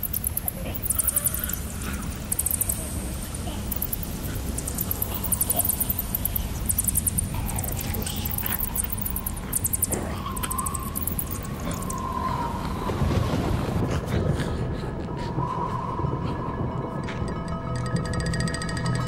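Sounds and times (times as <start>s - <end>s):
rapid high chirping: 0.0s - 12.1s.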